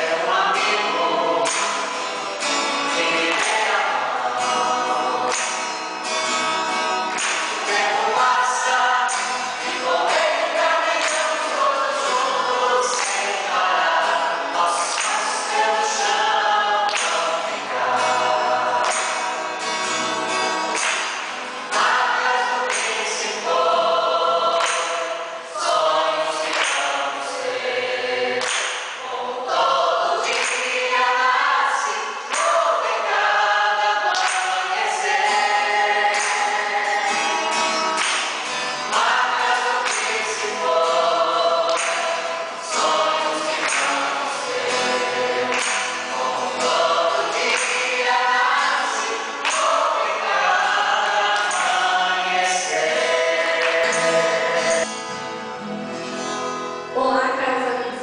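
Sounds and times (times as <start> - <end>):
choir singing a hymn: 0.0 - 55.1
acoustic guitars: 0.0 - 58.0.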